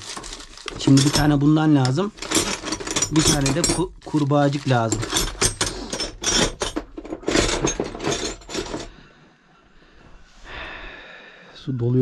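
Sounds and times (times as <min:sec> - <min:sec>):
metal tools clattering: 0:00.0 - 0:09.0.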